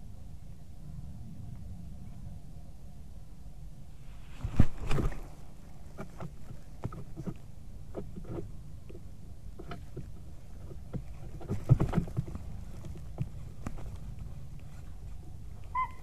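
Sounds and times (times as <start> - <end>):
steady low rumble: 0.0 - 16.0
heavy wing flaps: 4.2 - 7.3
sticks and branches knocking: 4.4 - 15.1.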